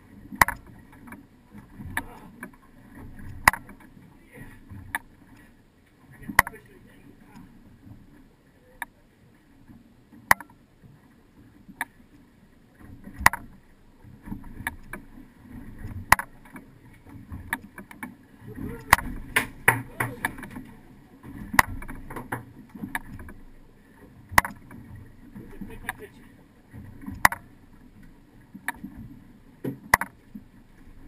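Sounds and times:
water slapping against boat hull: 0.0 - 5.3, 6.2 - 6.7, 12.8 - 31.0.

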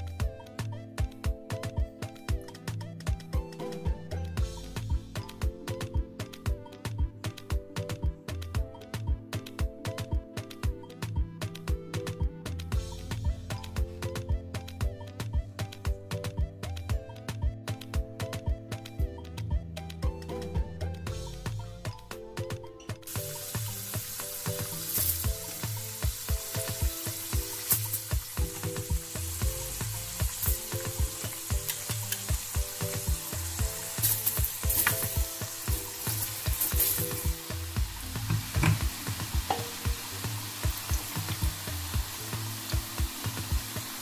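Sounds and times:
background music: 0.0 - 44.0
potatoes sizzling in hot oil: 23.1 - 44.0.

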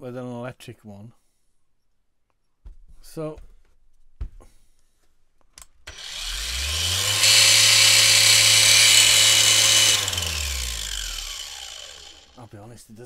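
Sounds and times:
angle grinder whirring: 5.9 - 12.4.

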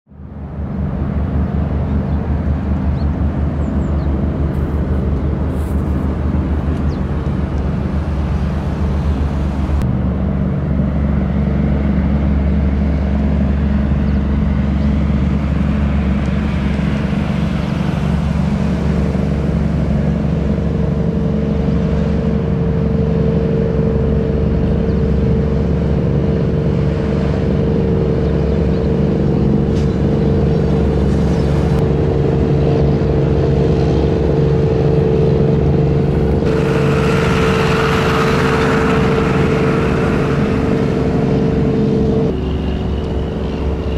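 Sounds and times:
diesel boat engine drone: 0.0 - 43.9
bow wave and wake rushing: 0.1 - 43.9.

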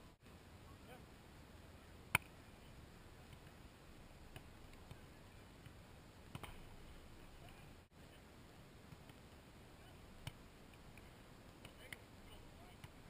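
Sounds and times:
hands striking volleyball: 4.3 - 5.0, 5.6 - 6.7, 10.2 - 12.0.

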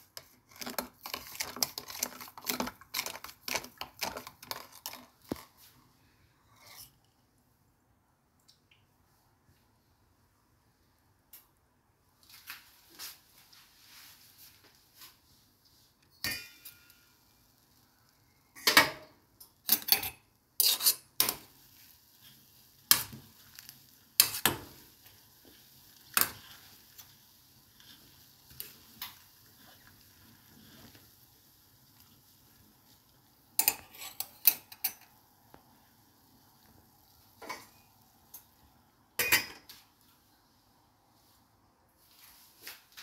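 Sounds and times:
pot boiling hiss: 0.0 - 6.0, 14.0 - 42.9
metal fork clinking on pot: 16.2 - 17.1.

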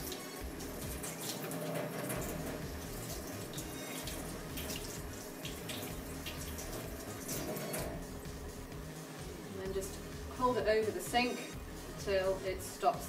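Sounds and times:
water splashing off paper: 0.0 - 7.8
tap water running into sink: 0.0 - 9.2.

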